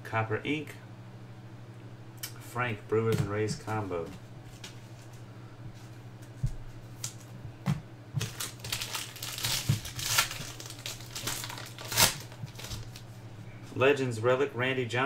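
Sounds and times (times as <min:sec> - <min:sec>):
foil wrapper tearing and crinkling: 0:08.2 - 0:13.0.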